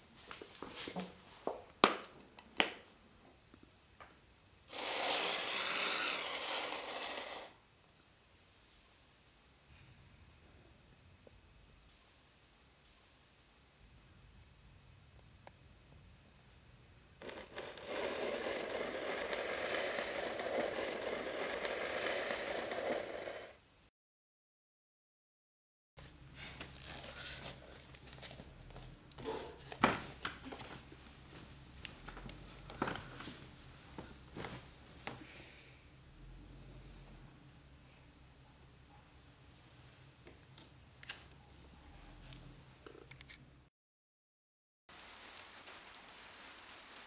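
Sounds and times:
dry crackling rustle: 0:45.0 - 0:47.0.

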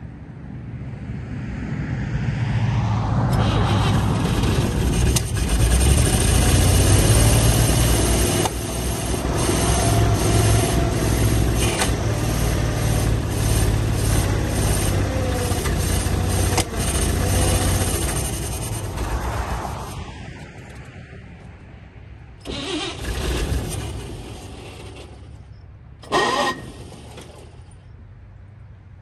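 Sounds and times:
truck engine running: 0:03.3 - 0:20.0, 0:22.4 - 0:28.0.

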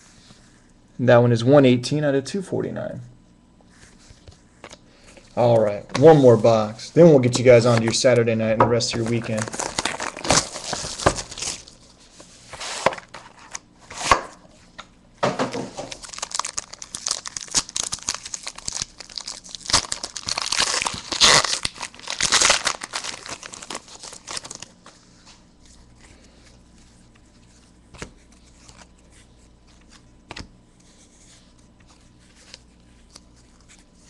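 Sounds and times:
packaging crinkling and tearing: 0:08.8 - 0:14.2, 0:15.5 - 0:25.0.

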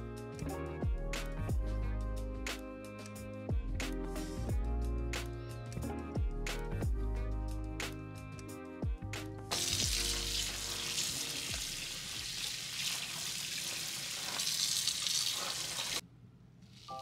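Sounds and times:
background music: 0:00.0 - 0:12.1
tap water running into sink: 0:09.5 - 0:16.0.

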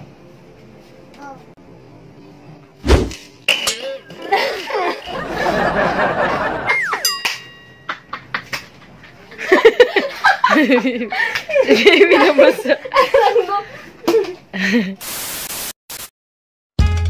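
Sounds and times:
people laughing: 0:04.1 - 0:07.0, 0:07.9 - 0:15.0.

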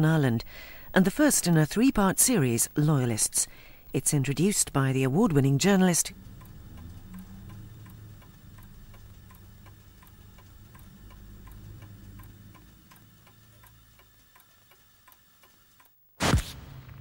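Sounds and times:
clock ticking: 0:01.1 - 0:16.0
low hum: 0:03.5 - 0:14.7.

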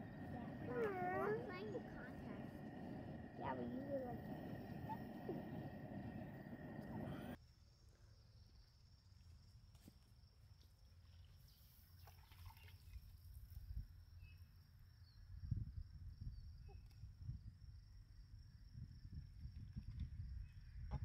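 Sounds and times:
low uneven rumble: 0:00.0 - 0:07.4.

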